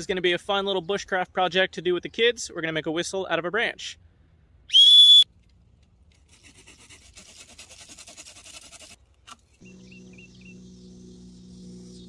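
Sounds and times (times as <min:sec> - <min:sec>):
knife scraping a branch: 0:06.1 - 0:09.6.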